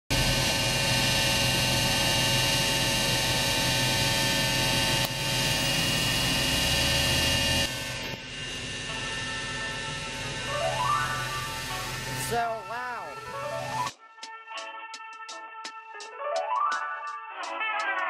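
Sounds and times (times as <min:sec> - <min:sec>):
mechanical drone with whine: 0:00.1 - 0:13.9.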